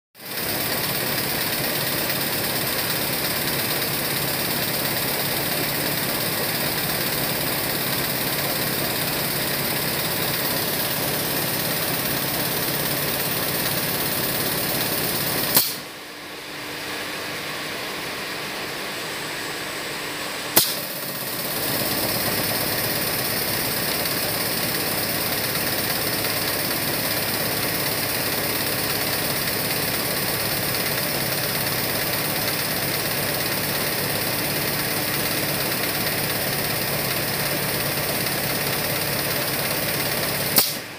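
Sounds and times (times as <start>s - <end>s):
diaphragm pump running: 0.2s - 16.0s, 20.6s - 40.9s
sharp click: 15.5s - 15.9s, 20.6s - 21.0s, 40.5s - 40.9s.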